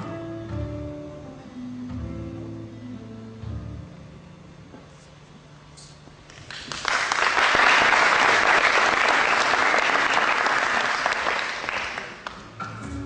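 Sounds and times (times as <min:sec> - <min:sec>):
audience applauding: 0:06.4 - 0:12.4.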